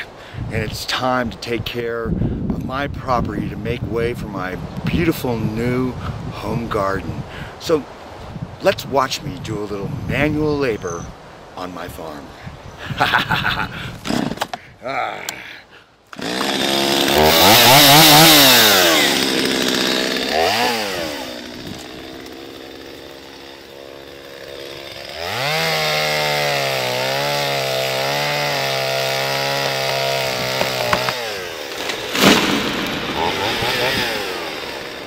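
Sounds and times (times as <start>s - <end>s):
chainsaw revving and cutting: 14.0s - 14.4s, 16.1s - 35.0s
tree trunk cracking: 16.1s - 35.0s.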